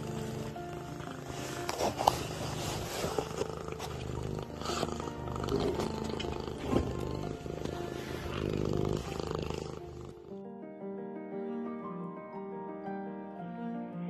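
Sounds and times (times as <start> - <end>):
cat purring: 0.0 - 10.4.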